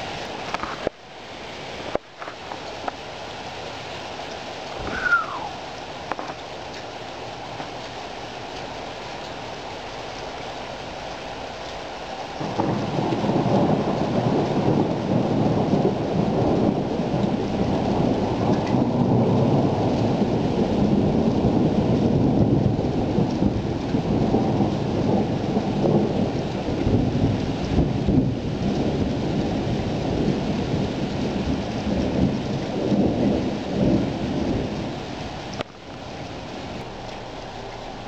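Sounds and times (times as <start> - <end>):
thunder rumbling: 0.0 - 0.9, 4.6 - 6.4, 11.0 - 38.0
steady rain: 0.0 - 38.0.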